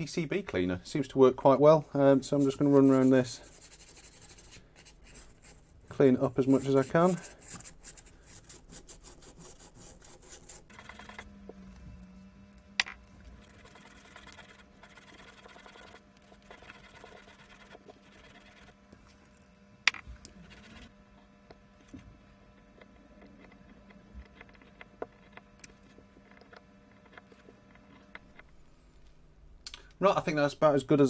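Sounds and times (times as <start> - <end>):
low steady hum: 0.0 - 31.0
abrasive paper scratching metal: 2.2 - 11.3, 13.4 - 18.8, 20.4 - 20.9.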